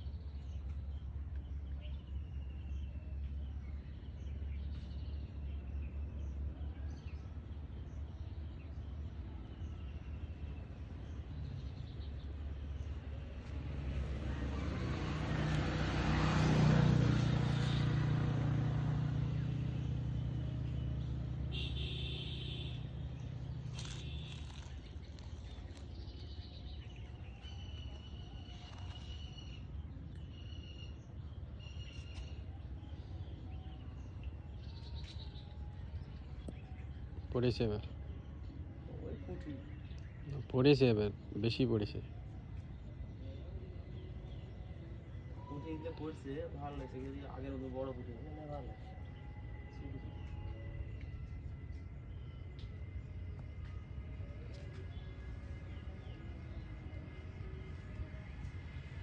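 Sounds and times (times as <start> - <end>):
birds chirping: 0.0 - 59.0
motor engine passing by: 13.0 - 30.3, 43.0 - 59.0.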